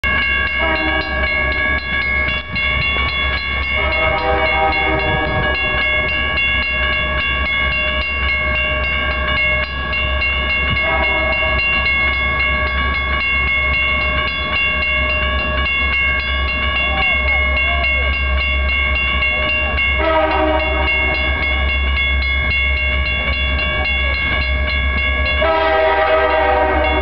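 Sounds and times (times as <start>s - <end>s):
railroad crossing bell ringing: 0.0s - 27.0s
train air horn blasts: 0.6s - 1.2s, 3.8s - 5.6s, 10.8s - 11.6s, 20.0s - 21.4s, 25.4s - 27.0s.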